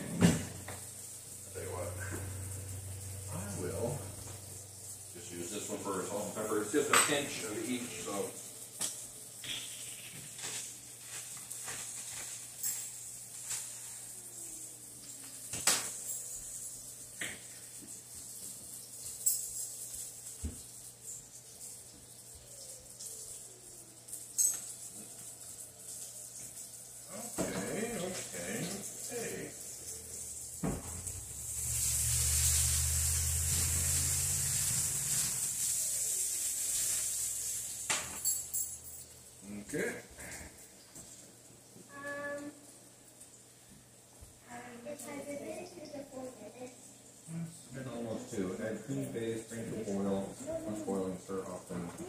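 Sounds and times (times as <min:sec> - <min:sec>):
food sizzling in a pan: 0:00.0 - 0:52.0
low hum: 0:01.3 - 0:05.6
utensils and dishes clinking: 0:05.5 - 0:08.2, 0:15.0 - 0:21.8, 0:24.1 - 0:25.6, 0:27.3 - 0:39.4.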